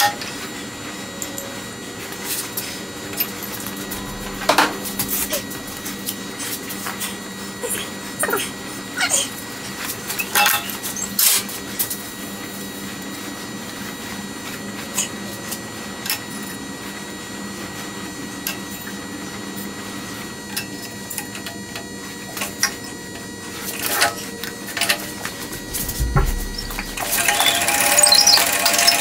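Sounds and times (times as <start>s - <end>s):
surface grinder humming: 3.4s - 6.6s, 25.2s - 28.3s.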